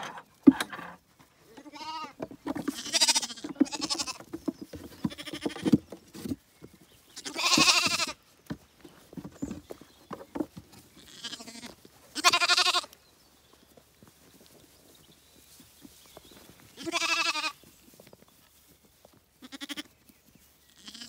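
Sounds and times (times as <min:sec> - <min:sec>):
lambs bleating: 0:01.5 - 0:04.2, 0:05.0 - 0:05.8, 0:07.2 - 0:08.2, 0:11.0 - 0:12.9, 0:16.8 - 0:17.6, 0:19.4 - 0:19.9, 0:20.7 - 0:21.0.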